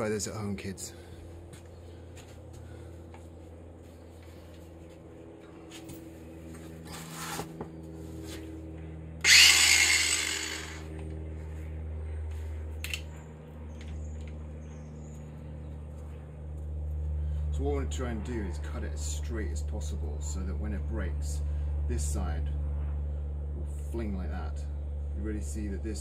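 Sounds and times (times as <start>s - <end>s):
steady low hum: 0.0s - 26.0s
angle grinder bursts: 9.2s - 10.9s.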